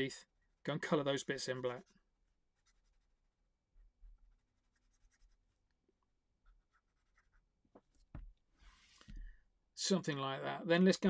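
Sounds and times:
marker scratching on paper: 2.5 - 3.3, 4.2 - 5.6, 6.5 - 8.2.

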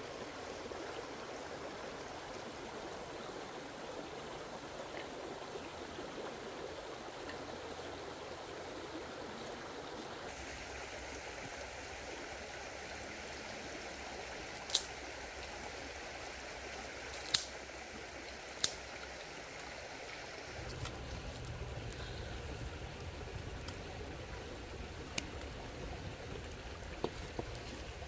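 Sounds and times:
rushing outdoor background noise: 10.0 - 28.0.

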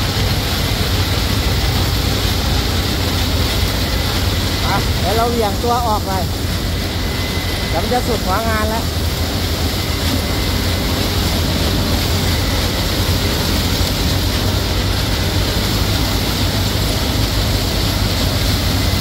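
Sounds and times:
low engine hum: 0.0 - 19.0.

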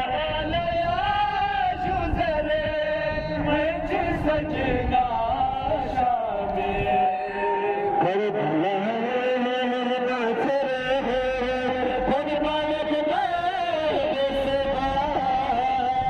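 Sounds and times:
mourning lament chanted: 0.0 - 16.0.

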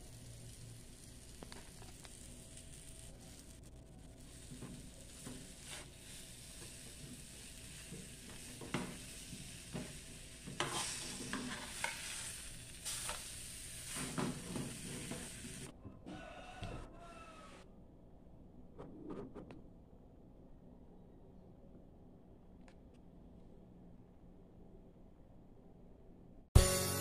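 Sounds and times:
faint sizzle in a pan: 0.0 - 17.6
metal spoon scraping a pan: 9.7 - 13.2.

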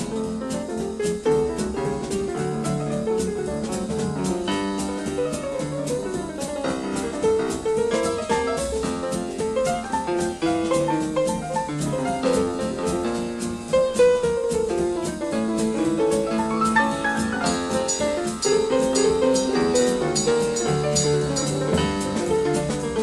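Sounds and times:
drum kit and cymbal beat: 0.0 - 23.0
jazz band playing swing: 0.0 - 23.0
piano melody: 0.0 - 23.0.

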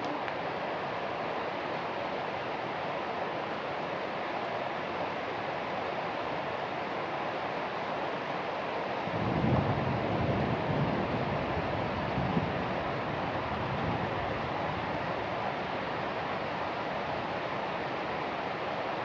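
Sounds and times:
rain falling: 0.0 - 19.0.

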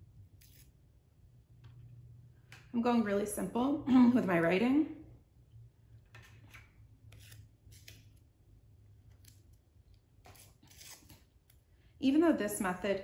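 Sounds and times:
masking tape being torn: 7.1 - 8.2, 10.2 - 11.6.

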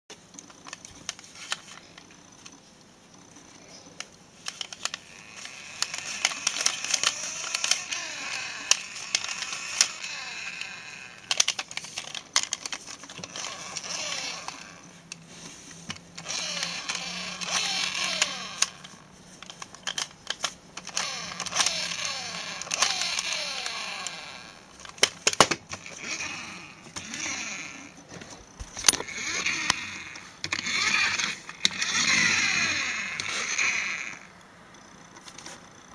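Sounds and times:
toy car flywheel whirring: 4.4 - 15.2, 16.2 - 28.0, 28.8 - 34.3
plastic clicks and knocks: 24.8 - 25.8.

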